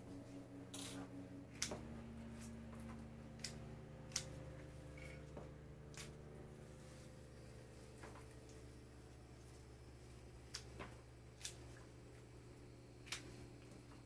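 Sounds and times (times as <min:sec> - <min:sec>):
steady low hum: 0:00.0 - 0:14.0
snips cutting stems: 0:01.5 - 0:06.3, 0:13.0 - 0:13.4.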